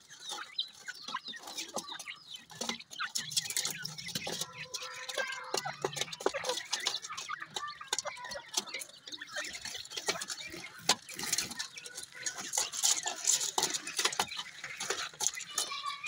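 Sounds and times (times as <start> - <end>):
beaks tapping a basin: 0.0 - 16.0
scratchy rustle: 9.4 - 16.0.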